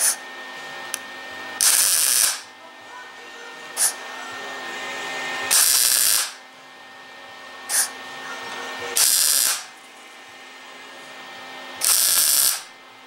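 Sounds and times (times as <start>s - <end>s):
steady welder hum: 0.0s - 13.0s
welder arc crackle: 1.6s - 2.5s, 5.5s - 6.4s, 9.0s - 9.8s, 11.8s - 12.7s.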